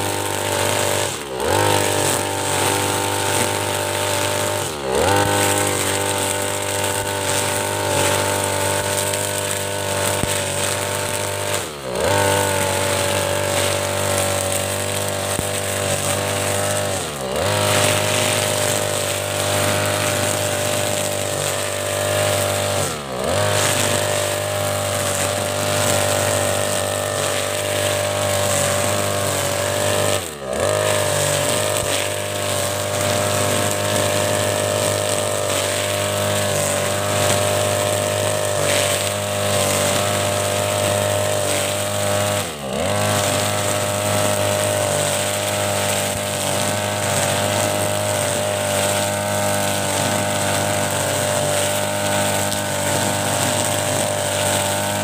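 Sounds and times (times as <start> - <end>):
brush cutter engine cutting grass: 0.0 - 55.0.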